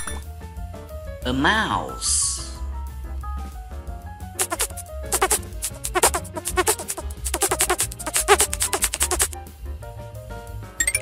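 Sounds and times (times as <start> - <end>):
cartoon mouse squeaks: 4.4 - 9.4
light background music: 4.4 - 9.4.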